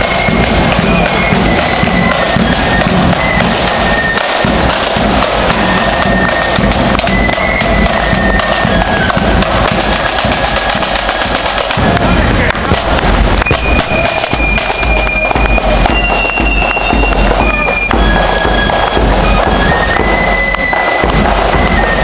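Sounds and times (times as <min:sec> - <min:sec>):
flutes playing high melody: 0:00.0 - 0:22.0
rapid snare drum strokes: 0:00.0 - 0:22.0
bass drum beat: 0:04.4 - 0:22.0.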